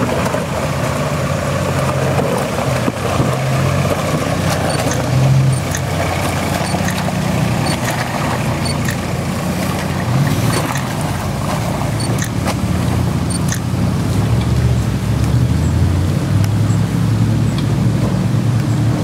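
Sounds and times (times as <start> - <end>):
engine running at low revs: 0.0 - 19.0.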